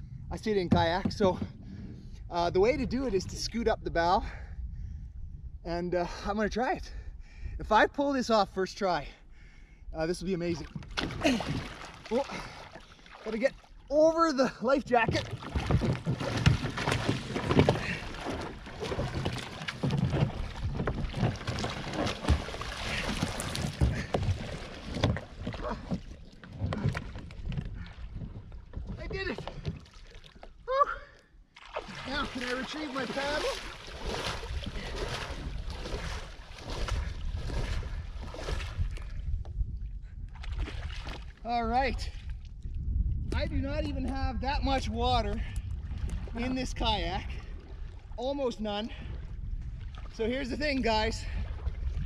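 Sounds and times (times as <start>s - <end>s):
wind rumbling on microphone: 0.0s - 8.5s, 14.8s - 29.8s, 31.9s - 52.0s
thumps on kayak: 0.6s - 1.6s, 15.0s - 29.9s
water splashing around kayak: 10.3s - 52.0s.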